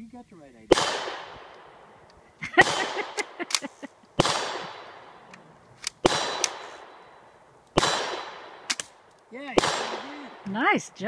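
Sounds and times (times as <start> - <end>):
sharp gun-like shots: 0.7 - 1.8, 2.6 - 5.2, 5.9 - 7.0, 7.8 - 10.5.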